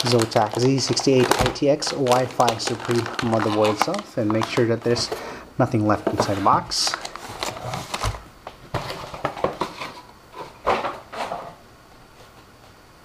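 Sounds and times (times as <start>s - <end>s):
plastic bag crinkling: 0.0s - 5.2s, 6.0s - 8.2s.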